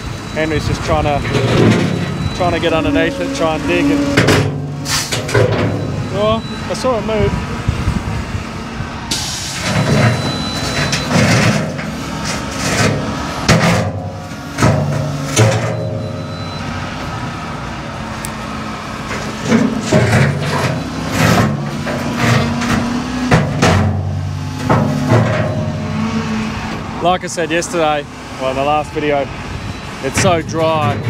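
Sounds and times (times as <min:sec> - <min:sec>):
diesel engine revving: 0:00.0 - 0:31.0
steel bucket scraping rock: 0:00.6 - 0:06.3, 0:19.0 - 0:26.4.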